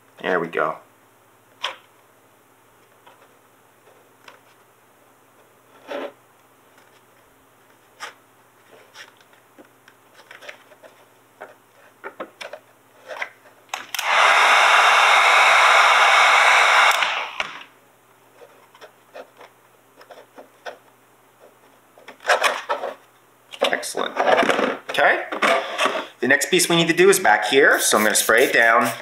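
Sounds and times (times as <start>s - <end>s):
hands rustling vinyl: 2.7s - 13.8s, 18.1s - 24.9s
heat gun blowing air: 13.9s - 17.7s.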